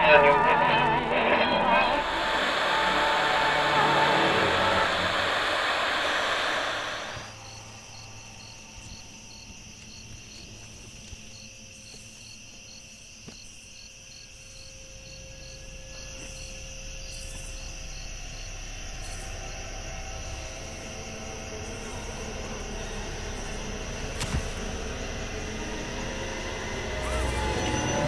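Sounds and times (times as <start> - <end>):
low rumble: 0.0 - 8.7
loud hiss: 1.8 - 9.2
crickets chirping: 1.8 - 28.0
steady high insect trill: 2.0 - 28.0.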